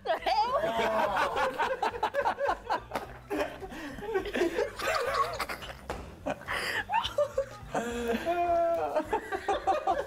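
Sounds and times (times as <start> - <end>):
people laughing: 0.0 - 10.0.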